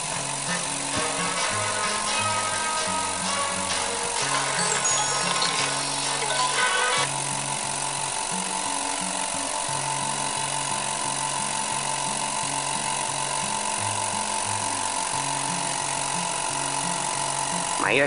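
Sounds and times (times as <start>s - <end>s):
background music: 0.0s - 7.8s
air compressor humming: 0.0s - 18.0s.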